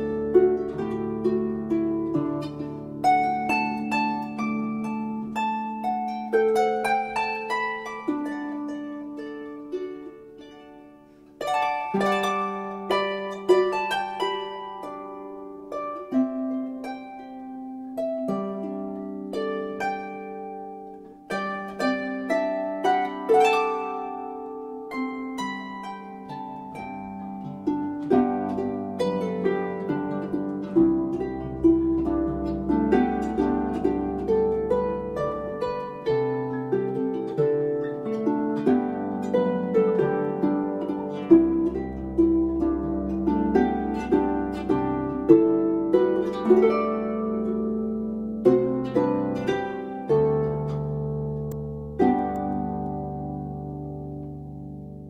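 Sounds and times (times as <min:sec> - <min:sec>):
solo harp music: 0:00.0 - 0:55.0.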